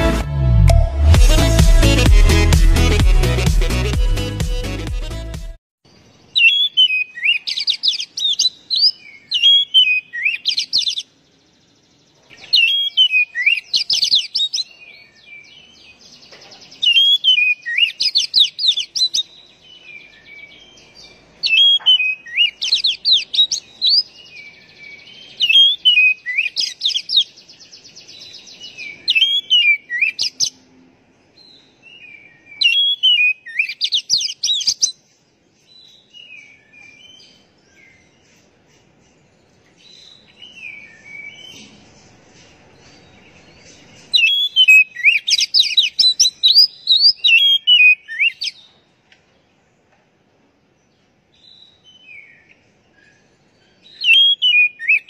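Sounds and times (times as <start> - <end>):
bird singing whistled phrases: 6.3 - 11.0, 12.4 - 15.5, 16.8 - 20.5, 21.4 - 27.3, 28.2 - 30.4, 31.9 - 35.0, 44.1 - 48.6, 53.8 - 55.0.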